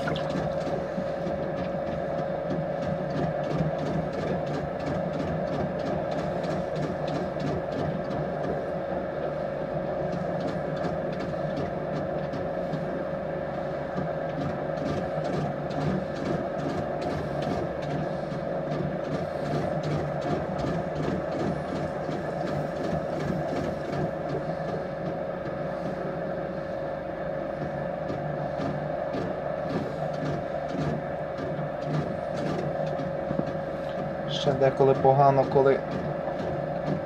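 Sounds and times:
potter's wheel motor humming: 0.0s - 37.0s.

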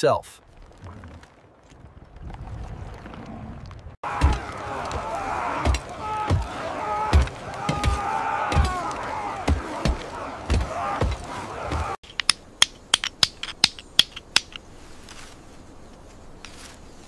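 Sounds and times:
low voices: 4.1s - 12.0s
hand tools clicking and tapping: 12.0s - 14.6s.

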